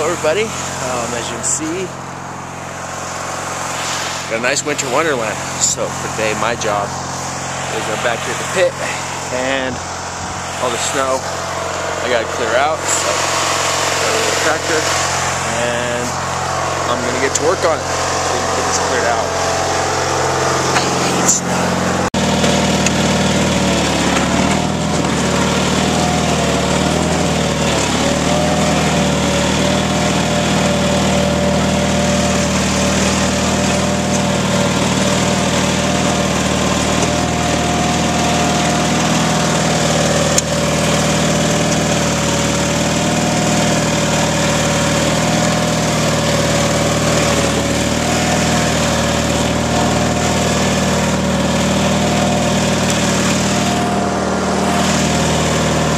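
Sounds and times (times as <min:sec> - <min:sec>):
whine wavering in pitch: 0:00.0 - 0:25.5
garden tractor engine running: 0:00.0 - 0:55.9.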